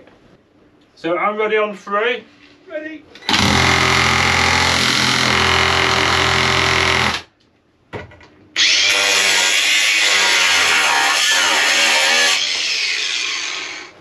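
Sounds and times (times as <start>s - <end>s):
power tool running: 3.3s - 7.3s, 8.6s - 14.0s.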